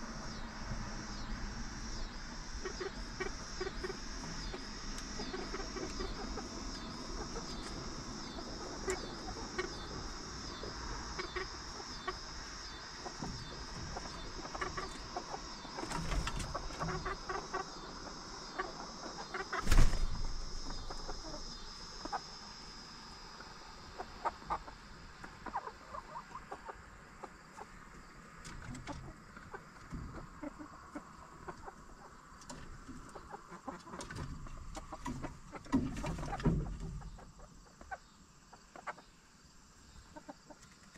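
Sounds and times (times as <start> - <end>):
high pulsing chirp: 0.0 - 25.6
hens clucking: 2.4 - 19.8, 20.6 - 22.4, 23.3 - 28.0, 28.6 - 39.1, 40.0 - 40.8
hens pecking: 2.6 - 12.2, 13.0 - 19.7, 28.6 - 38.0.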